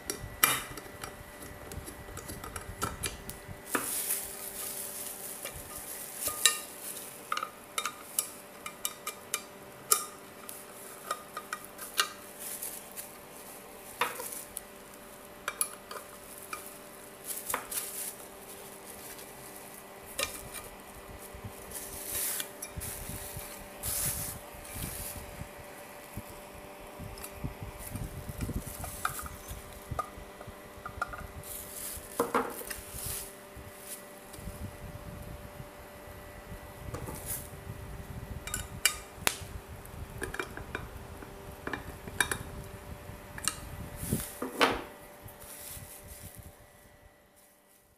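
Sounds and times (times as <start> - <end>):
bubble wrap rustling: 3.6 - 7.4, 10.3 - 26.3, 31.4 - 34.6, 45.2 - 46.7
frying pan clinking: 5.7 - 10.2.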